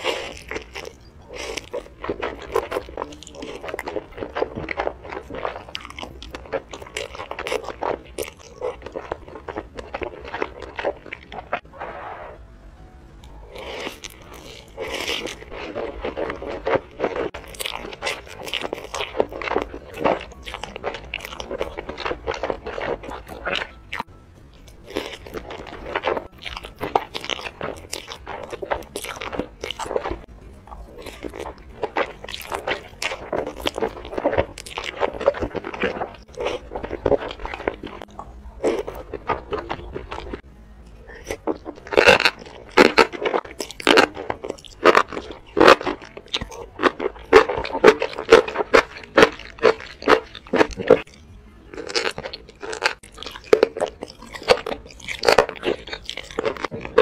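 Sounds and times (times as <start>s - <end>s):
noodles being slurped: 0.0s - 12.4s, 13.5s - 23.8s, 30.9s - 40.4s, 41.1s - 51.1s
wet chewing crunches: 0.0s - 12.4s, 13.2s - 57.0s.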